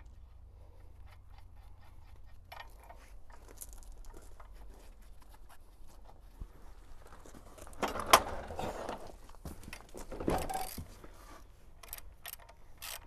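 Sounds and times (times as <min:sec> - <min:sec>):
low steady rumble: 0:00.0 - 0:09.4
clicks and scrapes of bolts: 0:01.0 - 0:04.6, 0:07.6 - 0:11.0, 0:11.8 - 0:13.0.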